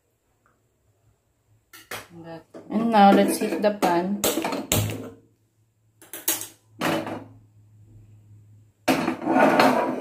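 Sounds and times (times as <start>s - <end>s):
metal pan scraping on grate: 8.9s - 10.0s.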